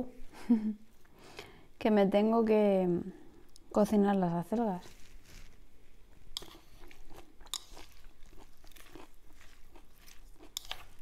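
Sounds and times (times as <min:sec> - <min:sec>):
person chewing crunchy salad: 0:04.8 - 0:11.0.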